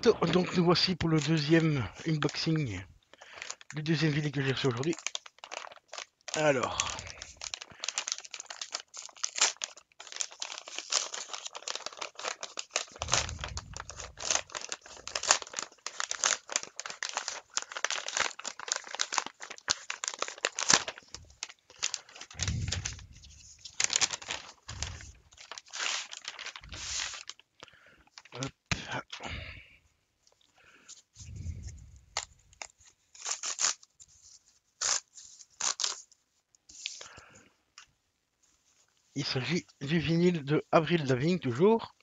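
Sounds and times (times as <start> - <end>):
packaging rustling and tearing: 0.3 - 28.5, 31.3 - 37.0
dull low bumps: 13.0 - 14.2.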